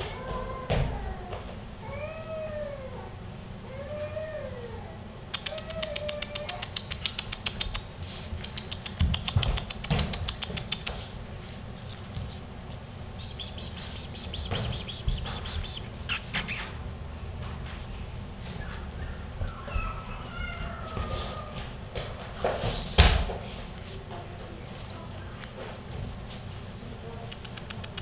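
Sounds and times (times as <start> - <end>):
puppies whining: 0.0 - 7.0, 18.4 - 21.8
fast clicking: 27.3 - 28.0.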